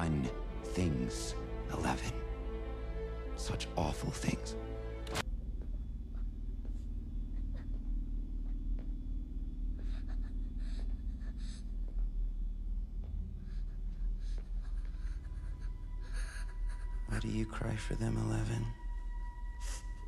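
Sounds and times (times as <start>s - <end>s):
low steady drone: 0.0s - 20.0s
faint footsteps on hard floor: 5.2s - 9.7s, 10.8s - 15.5s.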